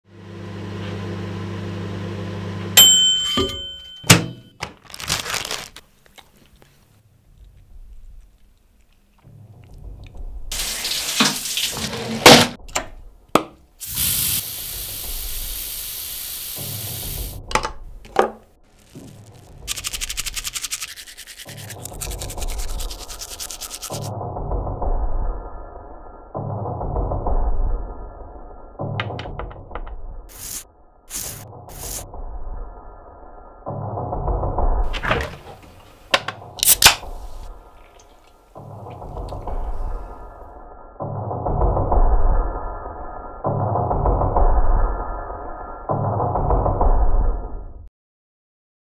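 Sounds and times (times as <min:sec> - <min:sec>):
microwave oven humming: 0:00.1 - 0:04.4
timer bell ding: 0:02.8 - 0:04.5
toothbrush scrubbing teeth: 0:18.9 - 0:24.1.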